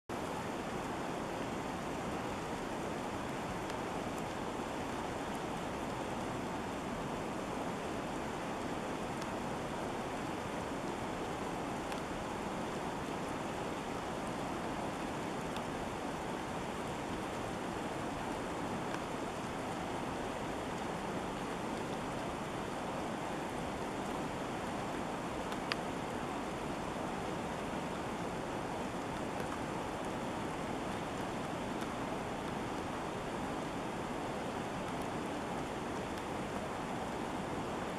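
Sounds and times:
river water rushing: 0.1s - 37.9s
faint click: 25.5s - 25.9s.

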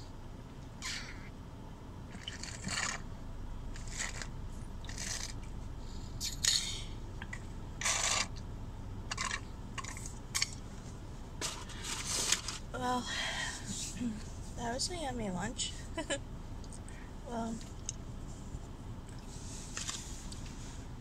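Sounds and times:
slurping through a straw: 2.1s - 3.0s, 3.8s - 5.4s.

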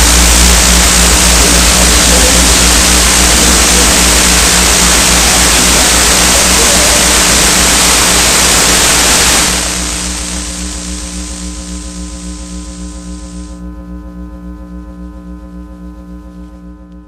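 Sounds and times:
loud dense hiss: 0.0s - 13.6s
low steady drone: 0.0s - 17.0s.

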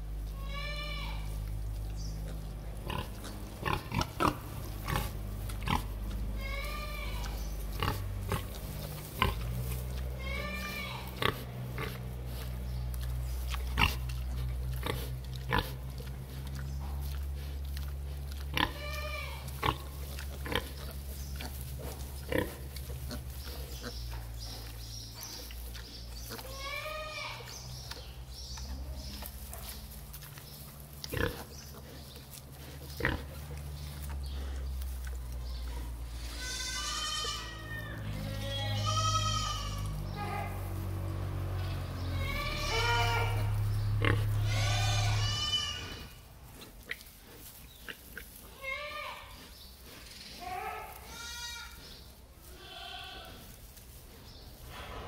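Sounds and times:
low steady hum: 0.0s - 47.6s
piglets squealing: 10.2s - 12.0s, 36.2s - 40.4s, 42.1s - 46.2s.

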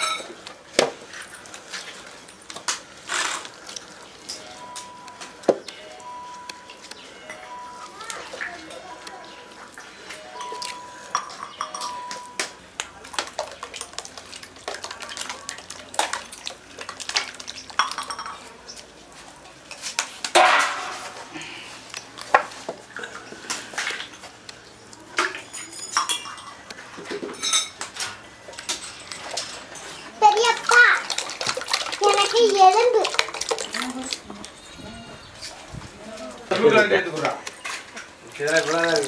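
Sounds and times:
metal cookware clattering: 0.0s - 0.4s, 17.1s - 18.6s, 20.3s - 21.3s, 25.2s - 30.8s.

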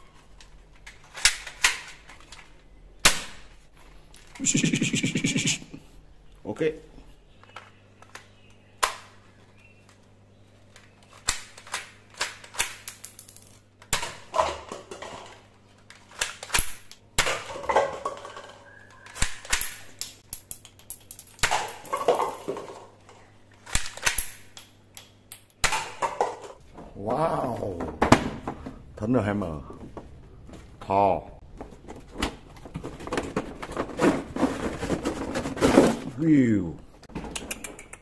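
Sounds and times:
paper cups rattling: 31.8s - 36.2s.

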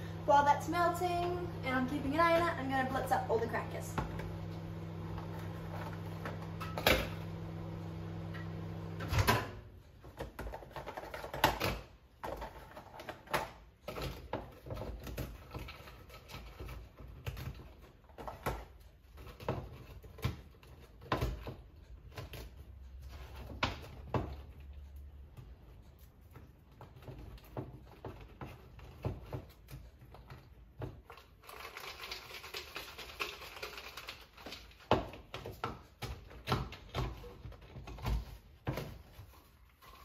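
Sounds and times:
microwave oven humming: 0.0s - 9.8s
biscuits breaking and clattering: 10.1s - 21.6s, 27.1s - 38.2s.

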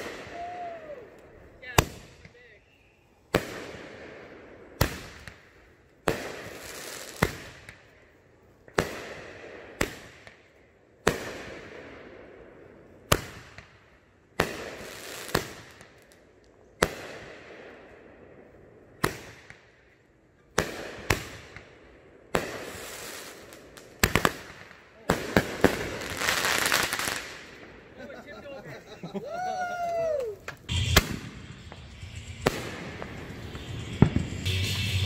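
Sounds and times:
fireworks bangs: 0.0s - 2.5s, 3.3s - 7.9s, 14.4s - 16.1s, 18.9s - 19.7s, 20.5s - 28.3s, 29.2s - 35.0s.

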